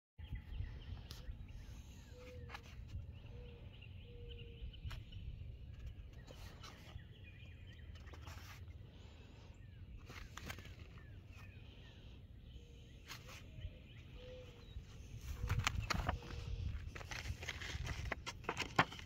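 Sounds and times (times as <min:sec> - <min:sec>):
wind rumble on microphone: 0:00.2 - 0:06.3, 0:13.6 - 0:18.2
birds chirping and calling: 0:00.2 - 0:19.0.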